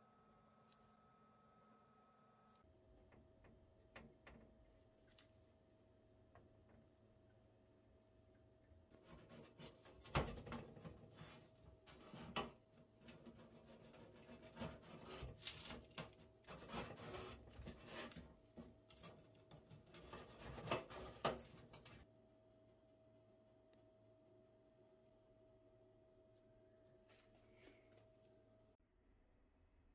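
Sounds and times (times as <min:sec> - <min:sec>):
faint steady hum: 0:00.0 - 0:13.5, 0:21.4 - 0:29.9
rubbing and scraping of objects: 0:09.0 - 0:22.0.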